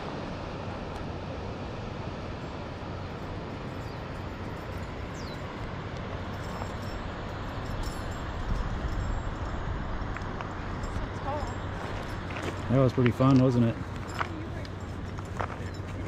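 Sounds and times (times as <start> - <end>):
wind noise on microphone: 1.8 - 12.7.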